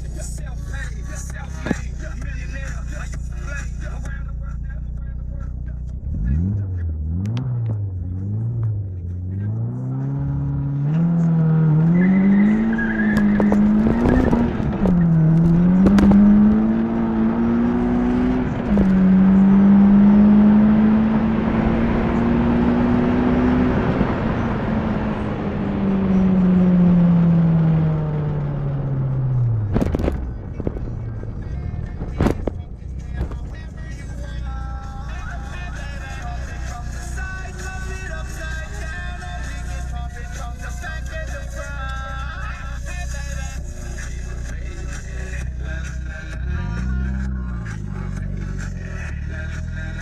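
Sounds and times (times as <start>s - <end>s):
car engine accelerating hard: 0.8s - 50.0s.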